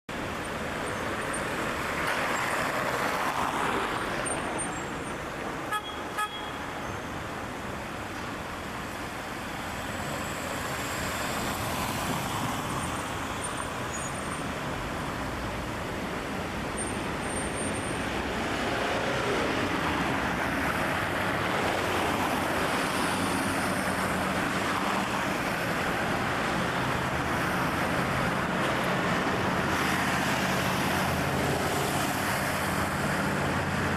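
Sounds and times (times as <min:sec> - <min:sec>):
cars and buses passing: 0:00.1 - 0:33.9
car horn toots: 0:05.7 - 0:06.6.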